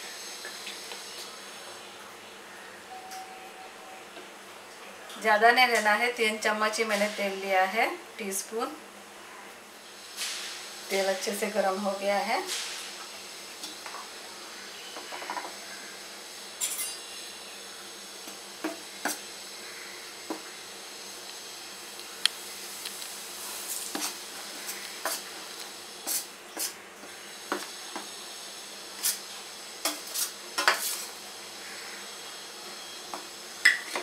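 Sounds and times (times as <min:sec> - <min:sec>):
spoon scraping steel bowl: 0:16.6 - 0:17.2.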